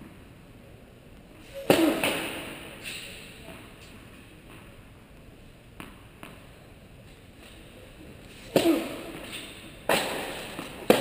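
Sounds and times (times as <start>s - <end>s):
racket hitting tennis ball: 1.6s - 3.7s, 8.4s - 11.0s
tennis ball bouncing on court: 5.8s - 6.5s, 9.9s - 11.0s.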